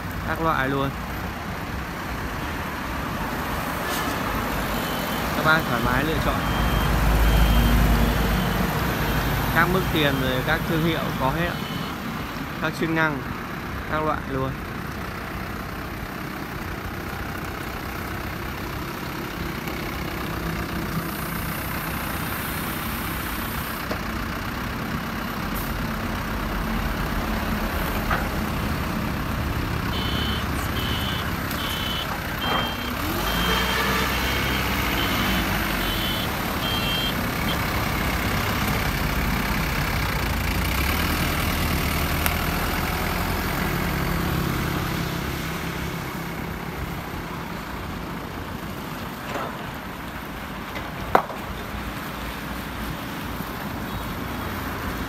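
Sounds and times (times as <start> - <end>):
diesel engine running: 4.3 - 53.8
reversing alarm beeping: 4.7 - 12.1, 29.9 - 37.6.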